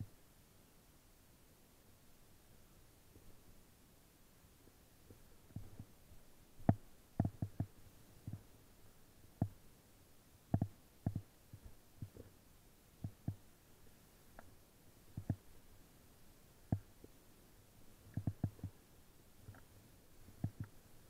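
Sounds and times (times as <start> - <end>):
soft low thumps and knocks: 6.6 - 8.4, 13.0 - 13.4, 15.2 - 15.4, 18.1 - 18.8, 20.3 - 20.7.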